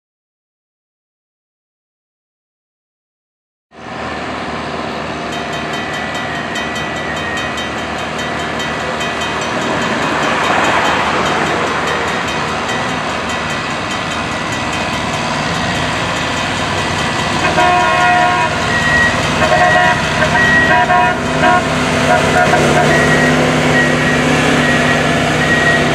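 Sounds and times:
railroad crossing bell ringing: 3.8 - 25.9
car passing: 9.3 - 25.9.

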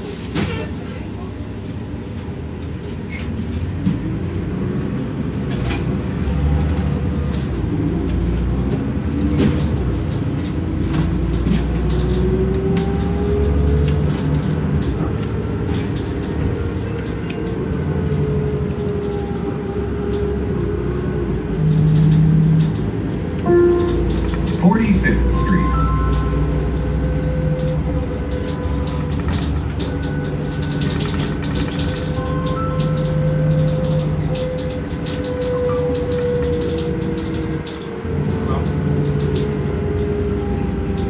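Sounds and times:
bus engine drone: 0.0 - 41.0
transmission whine: 23.4 - 31.0.

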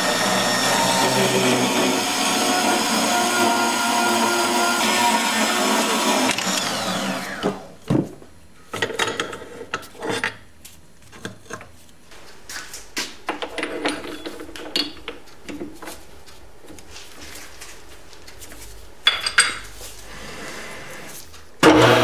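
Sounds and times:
band saw motor winding down: 0.0 - 7.7.

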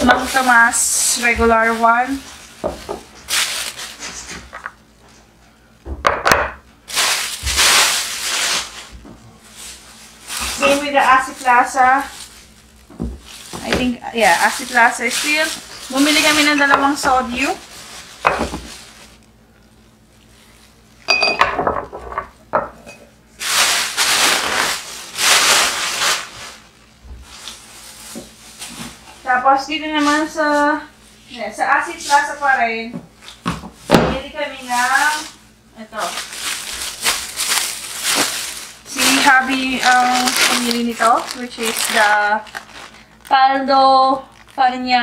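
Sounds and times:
plastic bag rustling: 0.0 - 5.4, 6.8 - 21.1, 23.3 - 45.0
glass bottles clinking: 21.1 - 23.0.

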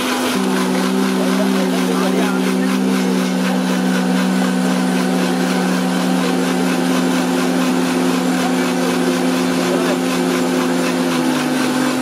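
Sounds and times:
electric blender motor running: 0.0 - 12.0.

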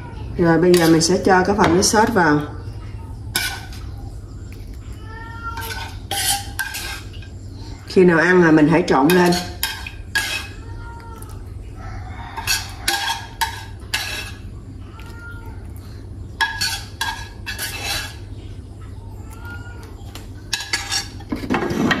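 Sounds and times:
metal spoon scraping a dish: 0.6 - 2.5, 3.2 - 4.0, 5.6 - 7.8, 8.7 - 10.6, 12.2 - 14.5, 15.8 - 18.4, 20.5 - 22.0.

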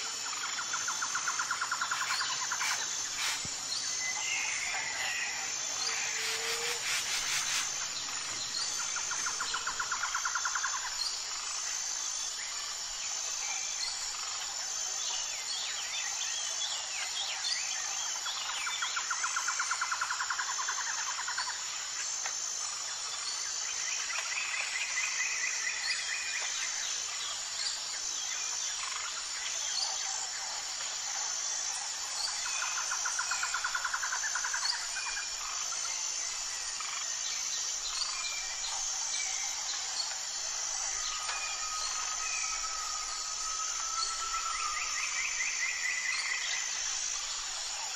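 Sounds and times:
birds singing trills: 0.0 - 14.5
high-pitched insect buzz: 0.0 - 47.9.

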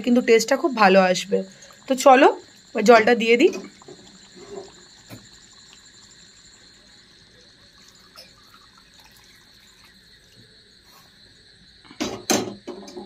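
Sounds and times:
water pouring into a pot: 1.4 - 10.8.

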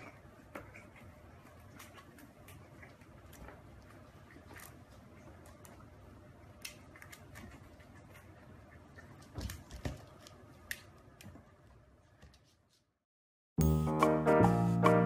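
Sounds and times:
puppy claws clicking and scuffing: 6.6 - 12.9.

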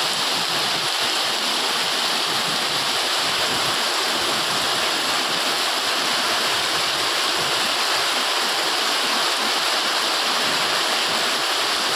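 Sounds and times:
heavy rain on corrugated roof: 0.0 - 11.9.

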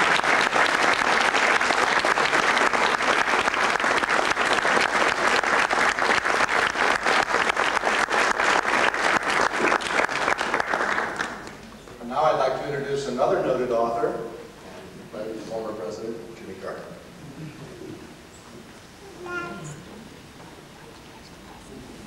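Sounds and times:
audience applauding: 0.0 - 11.7.

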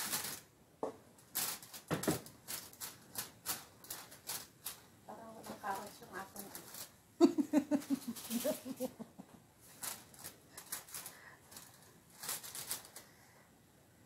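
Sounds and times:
spatula scraping on foil: 1.3 - 6.9, 9.6 - 13.1.

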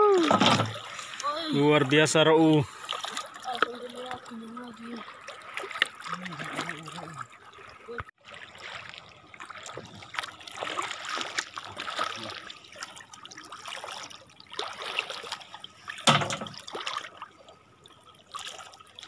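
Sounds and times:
seawater splashing around feet: 0.0 - 17.4.

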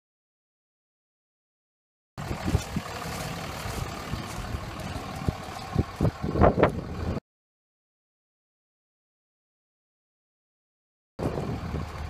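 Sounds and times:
engine running steadily: 2.2 - 7.2, 11.2 - 12.0.

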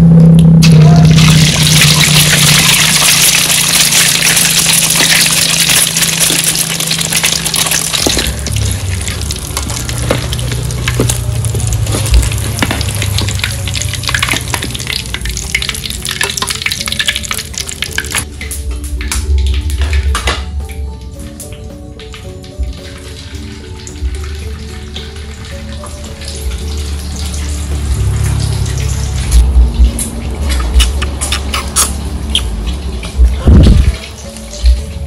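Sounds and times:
eggs sizzling in hot oil: 0.6 - 18.9
metal spatula scraping wok: 30.5 - 32.1.

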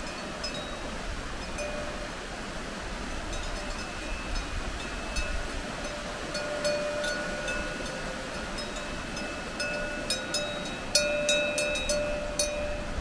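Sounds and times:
mountain stream rushing: 0.0 - 13.0
cowbell clanking: 1.5 - 2.0, 3.3 - 12.9.

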